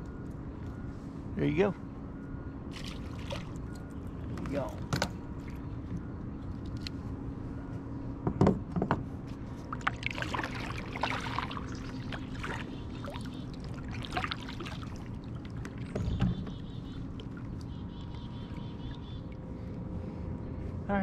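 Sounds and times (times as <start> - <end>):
kayak paddle splashing in water: 9.7 - 15.9.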